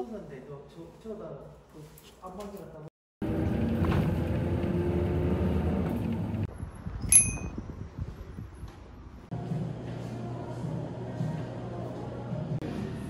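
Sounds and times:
quiet street sound: 0.0s - 13.0s
car road and engine rumble: 3.2s - 7.0s
high metallic ding: 7.0s - 7.6s.

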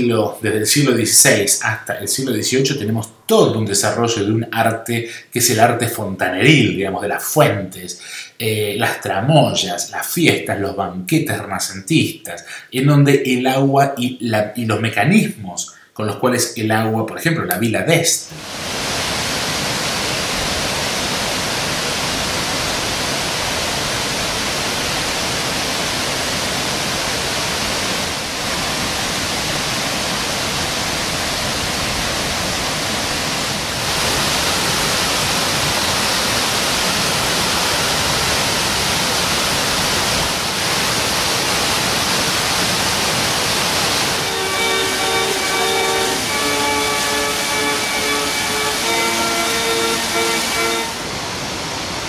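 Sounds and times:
fountain water splashing: 18.3s - 52.0s
chord of steady tones: 43.6s - 51.6s.

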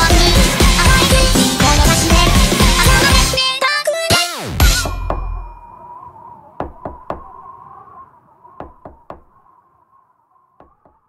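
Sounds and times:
faint high held tone: 4.8s - 7.6s
knocking in quick raps: 6.6s - 7.5s, 8.6s - 9.5s, 10.6s - 11.0s.

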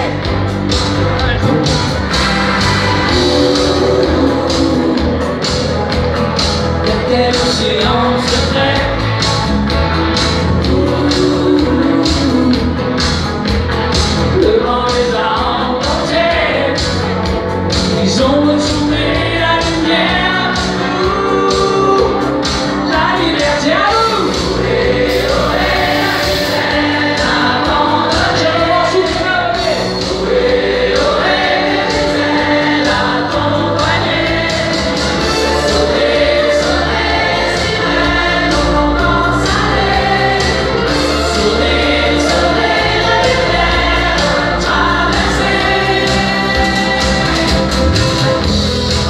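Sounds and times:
electric bass: 0.0s - 49.0s
person singing: 3.1s - 5.7s, 10.5s - 13.0s, 25.0s - 28.8s
drum beat: 25.1s - 26.7s.

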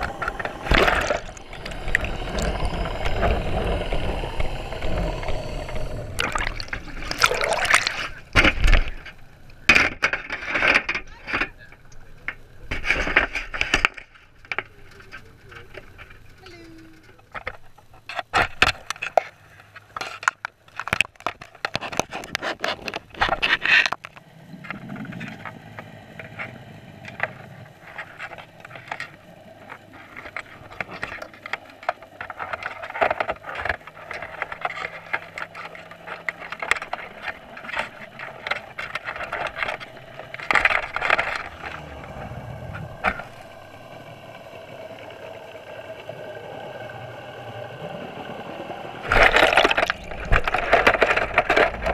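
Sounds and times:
underwater hiss: 0.0s - 8.3s
underwater clicks and knocks: 49.1s - 51.9s.

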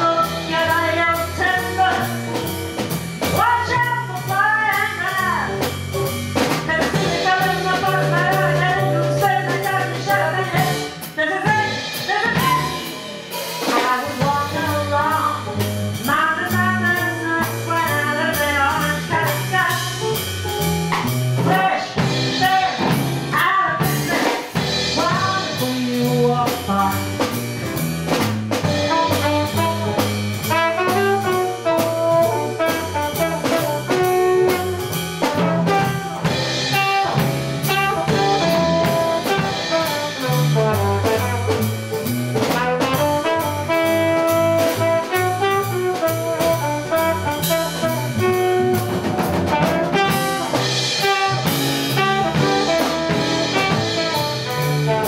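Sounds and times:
woman singing: 0.0s - 2.2s, 3.3s - 5.5s, 6.7s - 12.9s, 13.7s - 20.0s, 21.4s - 27.0s
drum kit: 0.0s - 55.0s
upright double bass: 0.0s - 55.0s
trumpet: 11.5s - 12.9s, 28.7s - 55.0s.

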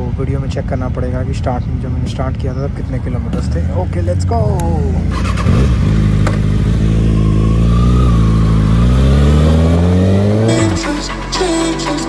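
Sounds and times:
motorcycle engine pulling away: 3.3s - 10.8s.

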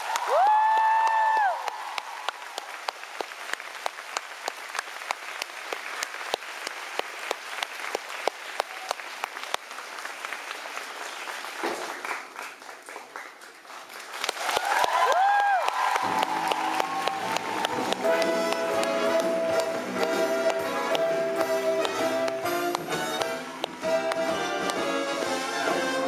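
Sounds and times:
audience applauding: 0.0s - 26.0s
nearby hands clapping: 11.6s - 24.8s.

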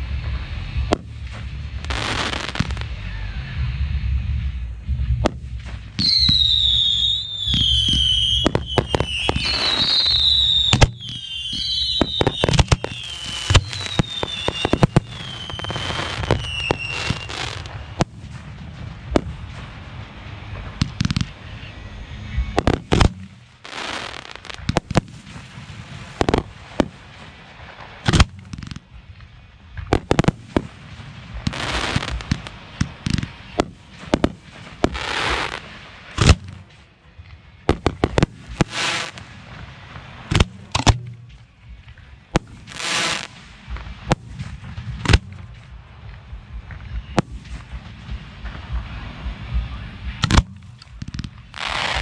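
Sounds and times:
fireworks firing and bursting: 0.0s - 3.5s, 4.4s - 52.0s
firework hissing: 0.0s - 3.9s, 4.5s - 28.9s, 29.9s - 36.8s, 37.7s - 40.9s, 42.3s - 46.0s, 47.0s - 52.0s.

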